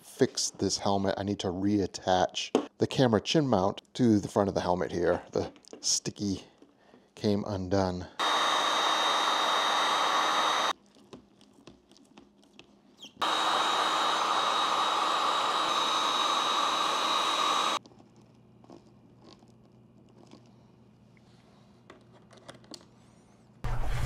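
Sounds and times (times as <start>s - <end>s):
heat gun blowing with high whine: 8.2s - 10.8s, 13.2s - 17.8s.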